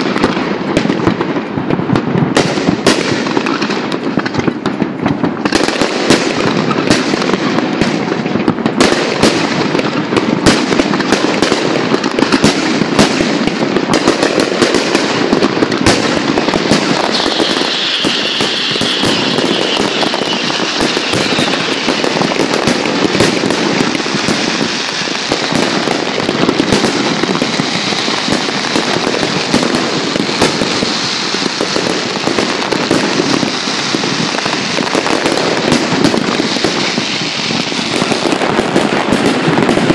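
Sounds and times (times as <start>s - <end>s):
firework crackle: 0.0s - 39.9s
firework hiss: 0.0s - 39.9s
firework shell bursts: 14.0s - 39.9s.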